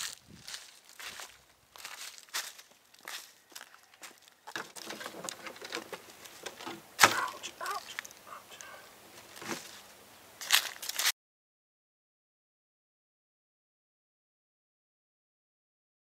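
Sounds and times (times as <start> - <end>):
footsteps on dry leaves: 0.0 - 11.1
rustling and clattering gear: 2.4 - 9.8.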